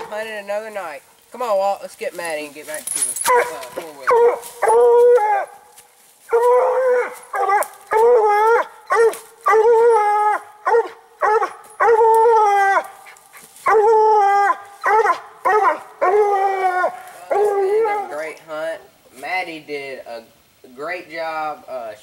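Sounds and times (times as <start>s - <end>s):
hound bawling barks: 3.2s - 5.6s, 6.3s - 12.9s, 13.6s - 18.3s.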